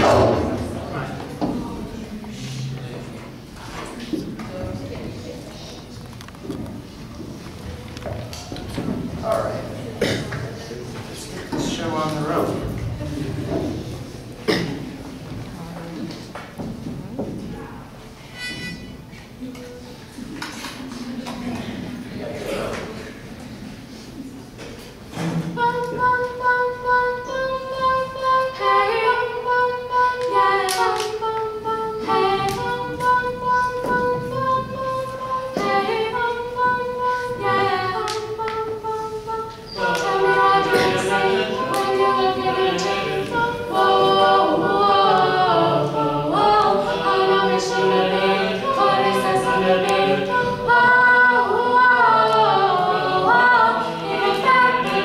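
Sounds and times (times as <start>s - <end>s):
a cappella group singing: 0.0s - 4.0s, 25.2s - 55.0s.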